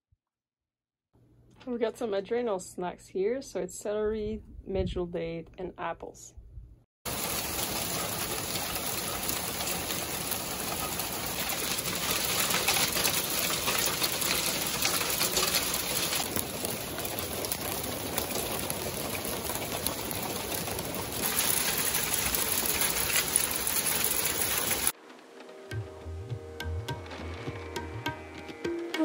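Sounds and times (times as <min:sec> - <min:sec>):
hail and rain pelting wood: 0:07.1 - 0:25.0.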